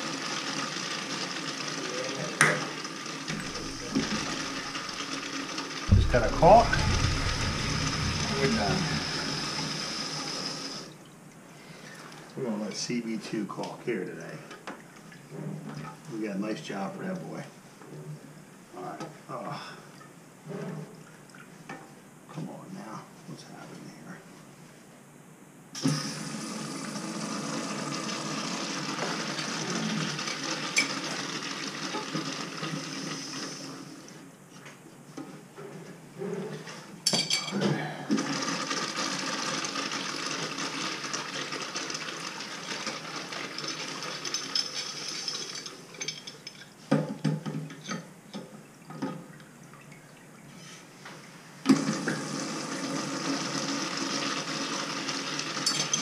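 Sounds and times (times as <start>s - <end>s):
urinal flushing water rush: 3.0s - 11.0s, 25.8s - 34.1s, 38.1s - 44.3s, 51.6s - 55.7s.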